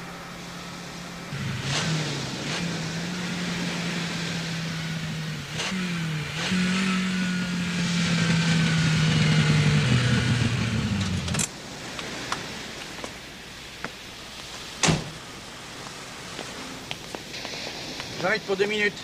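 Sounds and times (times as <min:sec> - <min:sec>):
car engine running: 0:00.0 - 0:11.5.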